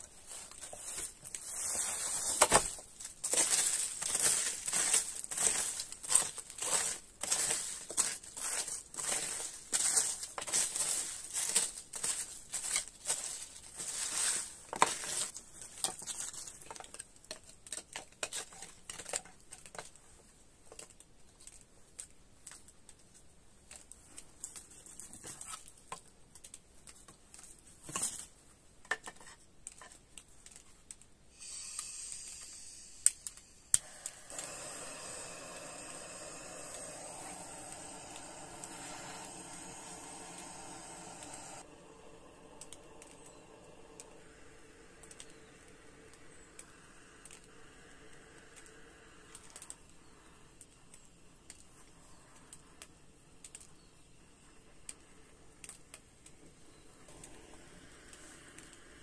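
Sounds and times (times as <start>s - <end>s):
steady hiss: 0.0s - 16.6s, 31.2s - 59.0s
crinkling and rustling: 0.0s - 31.2s
scattered clicks: 44.9s - 50.0s.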